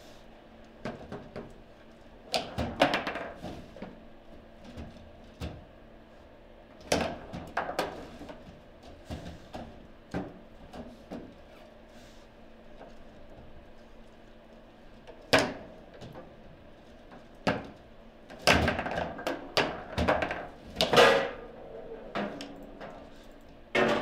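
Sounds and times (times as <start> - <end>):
foosball figures striking ball: 18.4 - 23.0
foosball rods banging: 18.4 - 24.0.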